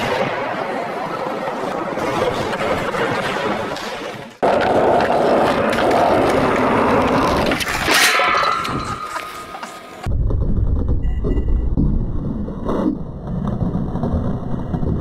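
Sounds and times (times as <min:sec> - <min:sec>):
skateboard clack and scrape: 0:00.0 - 0:10.1
skateboard wheels rolling on concrete: 0:00.0 - 0:15.0.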